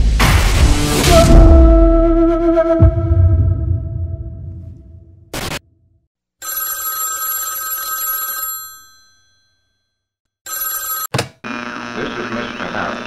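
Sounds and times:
telephone bell ringing: 6.4s - 11.2s
phone pickup click: 10.8s - 11.4s.

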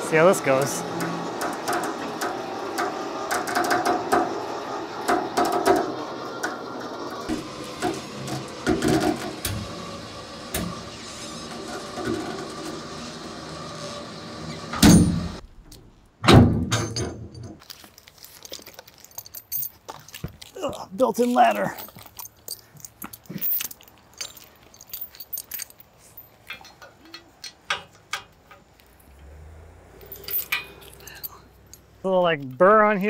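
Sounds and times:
electric winch running under load: 0.0s - 15.4s, 28.9s - 31.8s.

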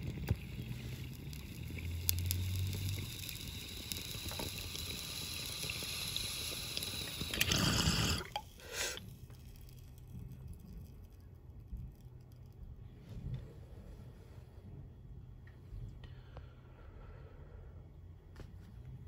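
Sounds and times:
water bubbling in bong: 0.0s - 9.1s.

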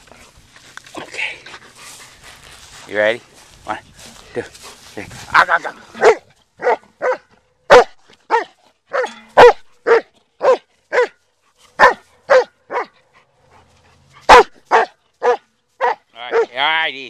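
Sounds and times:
dog barking: 5.9s - 11.2s, 11.8s - 13.0s, 14.2s - 16.6s.

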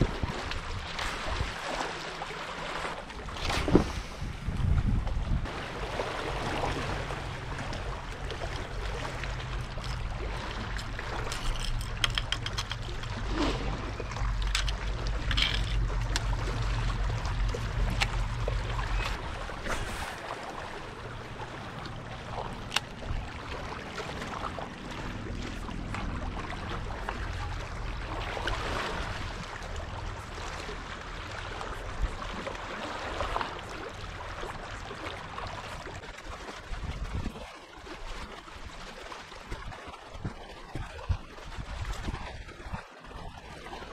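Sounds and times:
small waves lapping on rocks: 0.0s - 43.9s
low steady hum: 4.4s - 35.6s.

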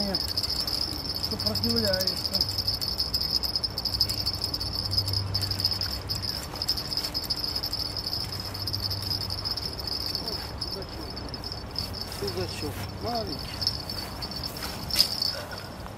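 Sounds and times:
insects chirring: 0.0s - 15.8s
low hum: 0.1s - 12.3s.

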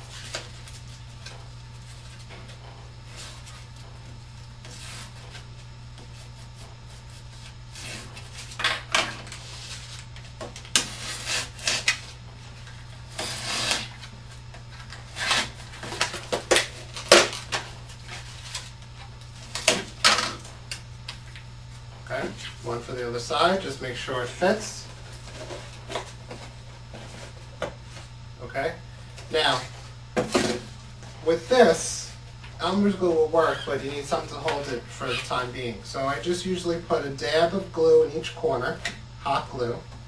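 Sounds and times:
steady low hum: 0.0s - 40.0s
knife cutting cardboard: 10.7s - 12.0s, 13.1s - 14.1s.

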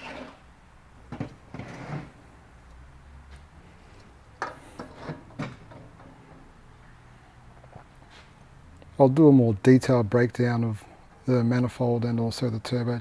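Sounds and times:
metal part scraping on workbench: 1.5s - 2.2s, 4.4s - 5.5s.

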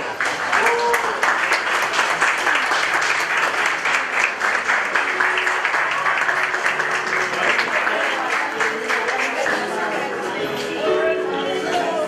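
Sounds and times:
guests applauding: 0.0s - 10.2s.

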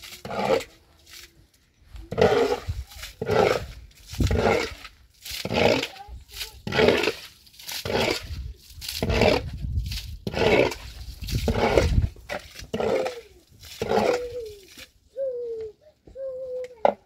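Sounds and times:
water splashing: 2.1s - 15.3s.

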